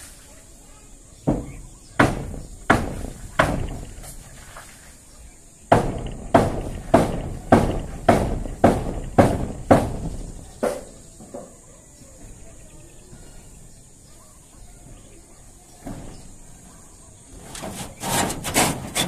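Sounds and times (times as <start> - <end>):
hammer blows: 1.2 - 4.2, 5.7 - 11.0.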